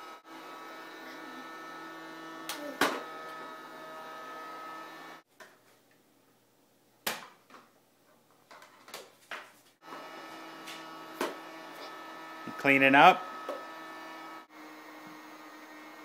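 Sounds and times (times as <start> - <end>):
toy vacuum cleaner humming: 0.0 - 5.2, 9.8 - 16.0.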